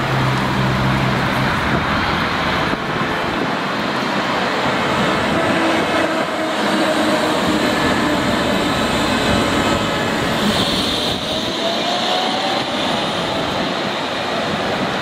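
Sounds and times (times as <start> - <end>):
tram wheels rumbling on rail: 0.0 - 15.0
rail noise hiss: 6.8 - 14.6.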